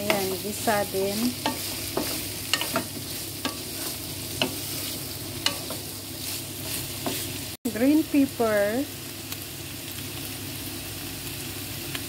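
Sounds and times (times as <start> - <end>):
spatula knocking and scraping pan: 0.0 - 7.4
food sizzling in a frying pan: 0.0 - 12.0.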